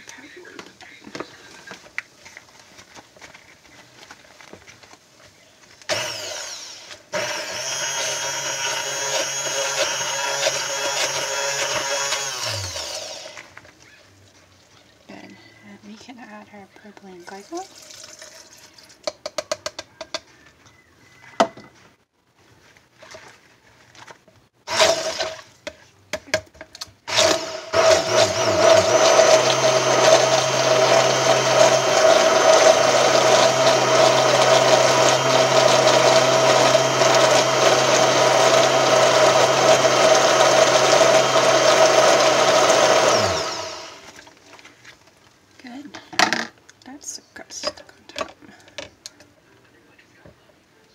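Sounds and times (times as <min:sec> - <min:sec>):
stick blender running: 0:05.9 - 0:13.6, 0:24.7 - 0:25.5, 0:27.1 - 0:44.2.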